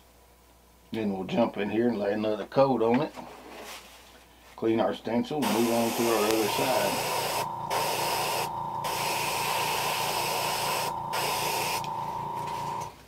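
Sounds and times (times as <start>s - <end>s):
airbrush spraying paint: 5.4s - 12.8s.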